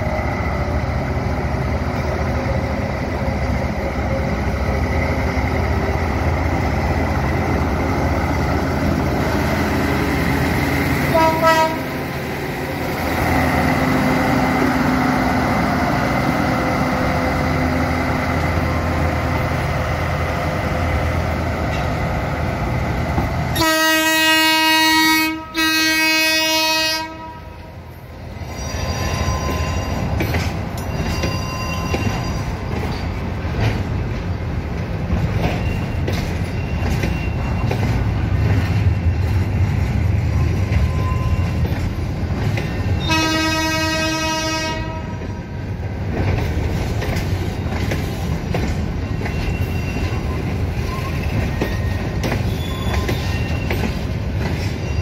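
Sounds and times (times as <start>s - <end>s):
diesel locomotive running: 0.0s - 55.0s
train horn: 11.1s - 12.0s, 23.5s - 27.7s, 43.0s - 45.2s
train wheel clatter: 28.8s - 43.7s, 44.8s - 55.0s.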